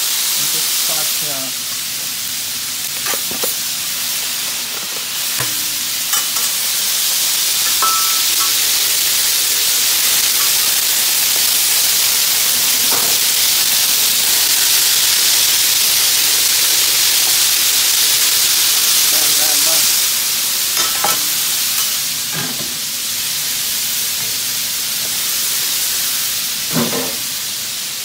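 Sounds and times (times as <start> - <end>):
fish sizzling on a griddle: 0.0 - 28.0.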